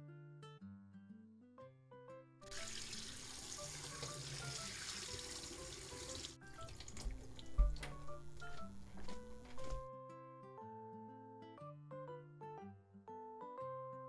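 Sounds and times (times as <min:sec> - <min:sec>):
tap water running into sink: 0:02.5 - 0:09.9
knocks and low thumps: 0:06.6 - 0:09.8.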